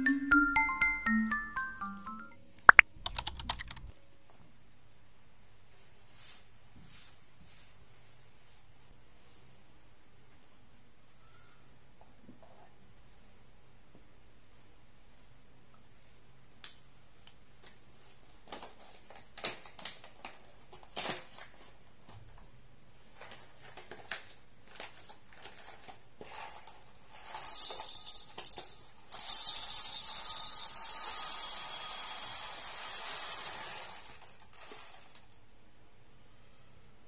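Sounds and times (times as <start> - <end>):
coffee beans poured into glass: 27.4 - 35.3.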